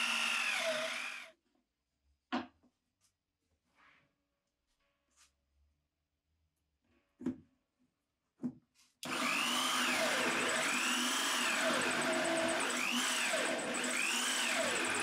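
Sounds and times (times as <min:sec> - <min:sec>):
hole saw cutting plywood: 0:00.0 - 0:01.3, 0:09.0 - 0:15.0
shop vacuum running: 0:00.0 - 0:01.3, 0:09.0 - 0:15.0.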